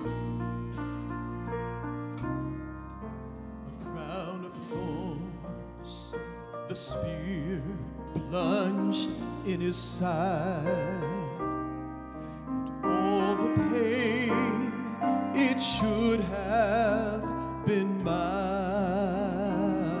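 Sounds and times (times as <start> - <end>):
sustained keyboard chords: 0.0 - 20.0
man singing into a microphone: 3.7 - 11.5, 12.8 - 20.0.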